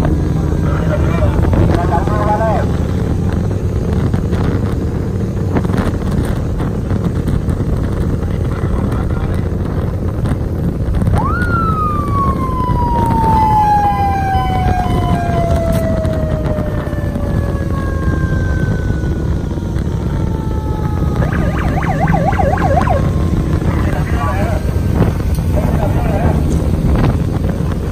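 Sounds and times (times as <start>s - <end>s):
vehicle engine rumble: 0.0s - 27.9s
wind rush: 0.0s - 27.9s
siren: 11.0s - 25.2s.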